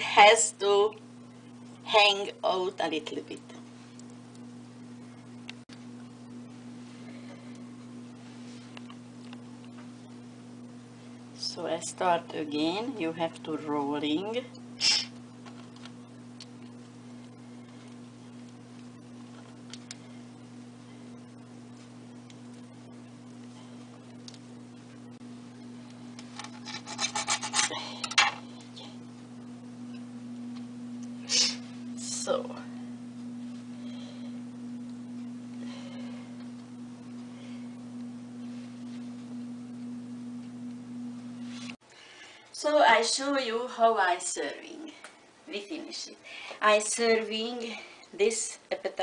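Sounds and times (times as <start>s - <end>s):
low electrical hum: 0.0s - 49.0s
loud scrape: 26.5s - 27.7s.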